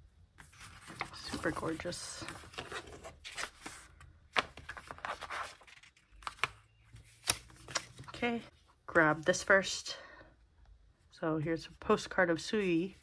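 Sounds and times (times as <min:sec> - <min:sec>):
paper pages rustling: 0:00.4 - 0:08.5.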